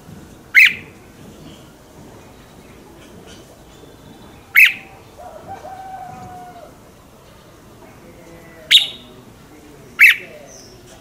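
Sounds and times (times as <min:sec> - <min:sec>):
bird giving sharp calls: 0:00.5 - 0:01.0, 0:03.2 - 0:06.8, 0:08.7 - 0:09.2, 0:09.9 - 0:10.9.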